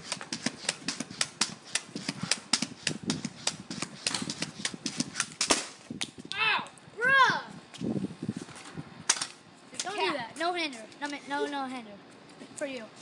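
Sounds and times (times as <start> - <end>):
pogo stick knocking on concrete: 0.0 - 5.7.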